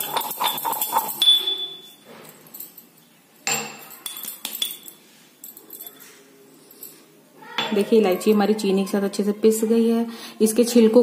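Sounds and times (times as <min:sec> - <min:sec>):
pestle clinking in metal mortar: 0:00.0 - 0:01.8.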